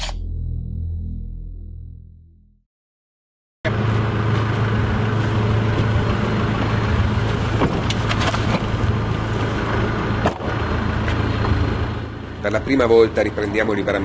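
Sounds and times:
vehicle engine idling: 3.7 - 14.0.

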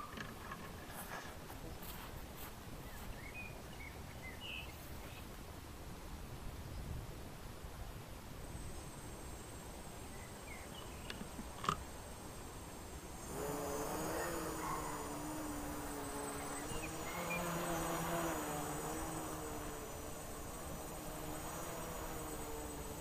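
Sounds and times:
quadcopter motors buzzing: 8.4 - 23.0.

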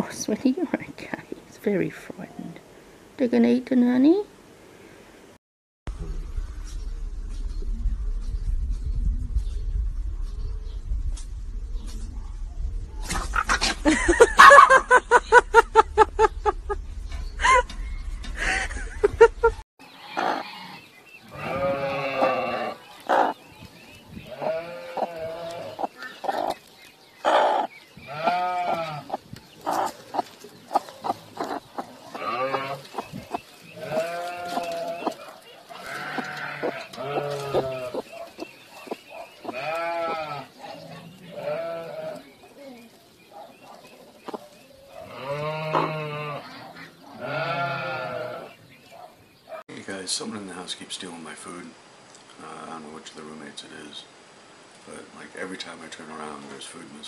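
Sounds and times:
hen calling: 19.8 - 49.1
bleat-like animal cries: 20.0 - 22.8, 24.3 - 25.7, 28.1 - 29.1, 35.8 - 38.0, 39.5 - 40.5, 41.3 - 42.2, 45.1 - 46.5, 47.2 - 48.5.

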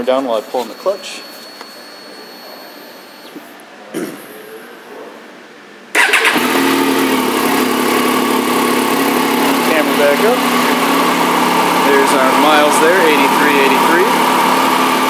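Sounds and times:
motorcycle engine starting and idling: 5.9 - 15.0.

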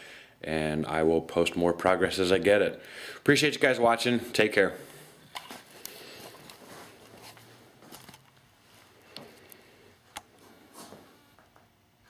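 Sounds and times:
camera handling clicks and rustles: 5.3 - 8.5.

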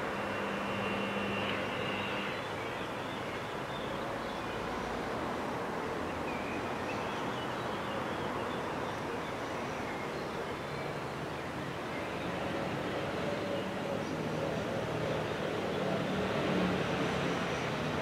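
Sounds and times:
vehicle engine humming: 0.0 - 2.6
traffic and street noise: 0.0 - 18.0.

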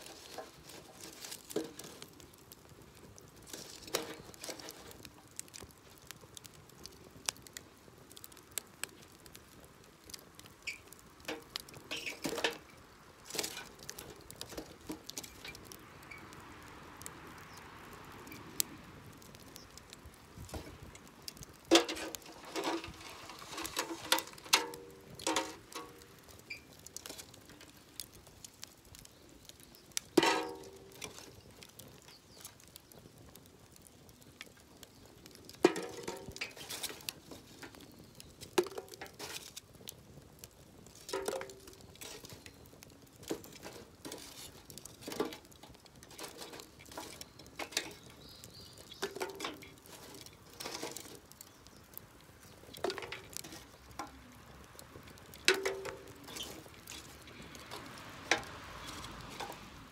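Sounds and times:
charcoal clinking: 0.0 - 2.7, 3.3 - 5.7, 10.7 - 15.8, 20.4 - 29.1, 29.8 - 32.7, 35.3 - 39.7, 40.7 - 59.9.

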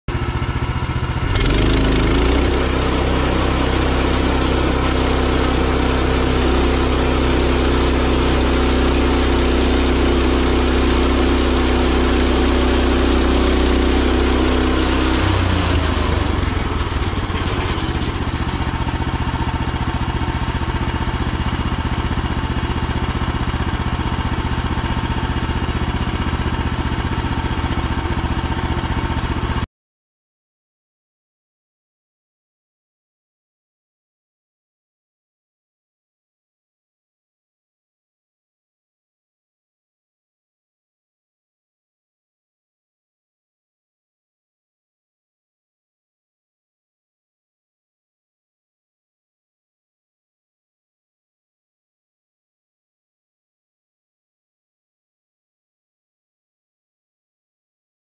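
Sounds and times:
sawmill gas engine running: 0.1 - 29.7.

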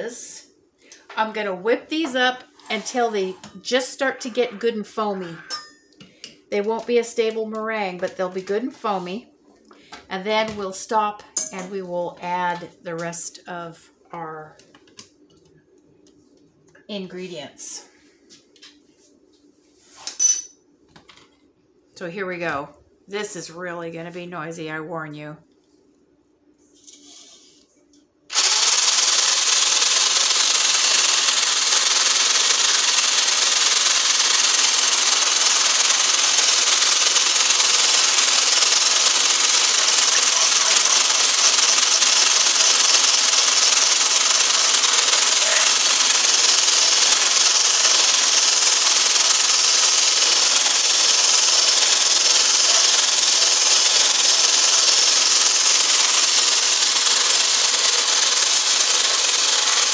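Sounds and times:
stick blender whisking: 28.3 - 59.9.

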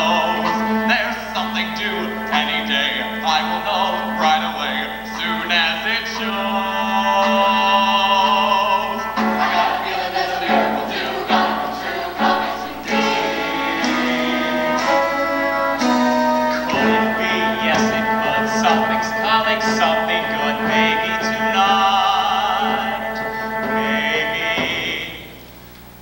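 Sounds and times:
choir singing: 0.0 - 25.3
piano and band accompaniment: 0.0 - 25.3.

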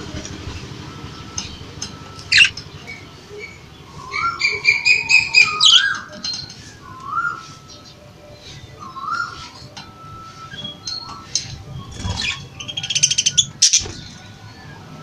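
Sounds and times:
repeated chattering notes: 0.0 - 14.9
budgerigars chirping: 2.3 - 6.1, 12.0 - 14.0.

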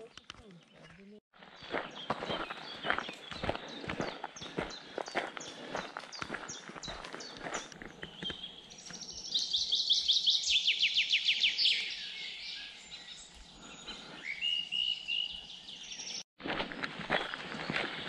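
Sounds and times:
songbird singing: 0.0 - 18.0
footsteps on gravel: 0.4 - 9.2, 16.4 - 18.0.

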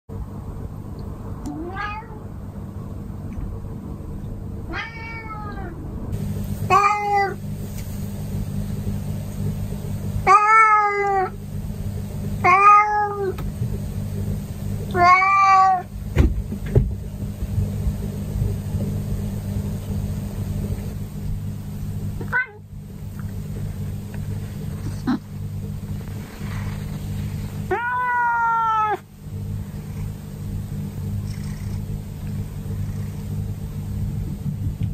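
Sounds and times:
steady low hum: 0.1 - 34.9
cat meowing: 1.5 - 2.2, 4.7 - 5.8, 6.7 - 7.4, 10.3 - 11.4, 12.4 - 13.4, 14.9 - 15.9, 22.3 - 22.7, 27.7 - 29.1.

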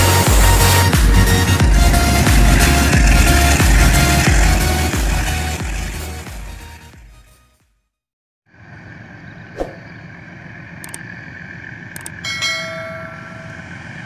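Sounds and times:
distant freight train rumble: 0.0 - 6.7, 8.7 - 14.0
intro music: 0.0 - 7.4
sharp clicks: 10.8 - 11.0, 12.0 - 12.2
ringing tone: 12.2 - 13.8.

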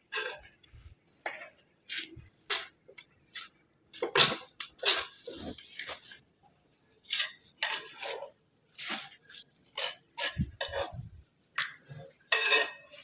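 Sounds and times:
scrapes and clinks on stone: 7.0 - 11.2, 11.9 - 13.0.

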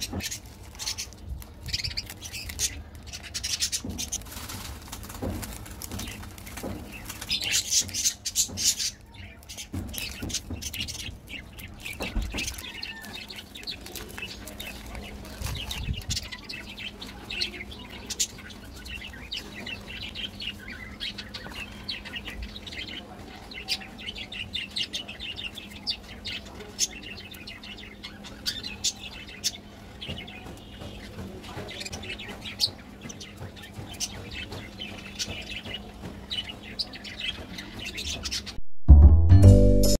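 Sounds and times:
plastic wrapper crinkling: 0.2 - 8.0, 9.4 - 16.4.

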